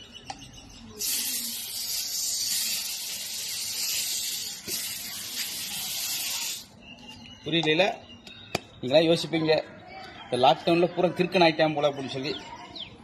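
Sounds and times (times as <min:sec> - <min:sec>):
aerosol spray hissing: 0:01.0 - 0:06.7.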